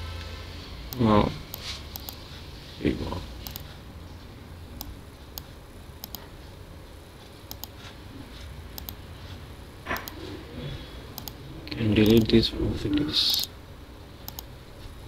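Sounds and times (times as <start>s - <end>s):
faint low hum: 0.0s - 15.0s
computer mouse clicking: 0.9s - 2.2s, 3.4s - 3.7s, 4.8s - 6.3s, 7.5s - 7.8s, 8.8s - 9.0s, 9.9s - 10.2s, 11.2s - 12.3s, 13.3s - 13.5s, 14.3s - 14.5s.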